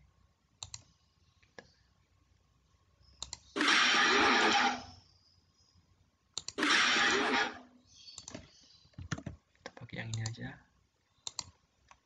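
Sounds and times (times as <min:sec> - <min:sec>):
mouse clicks: 0:00.6 - 0:01.8, 0:03.1 - 0:03.6, 0:06.4 - 0:06.7, 0:08.1 - 0:08.4, 0:09.0 - 0:10.4, 0:11.2 - 0:12.0.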